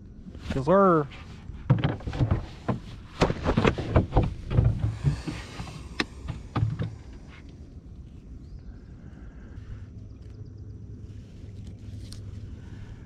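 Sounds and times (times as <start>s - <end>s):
knocks against kayak hull: 1.7s - 7.1s.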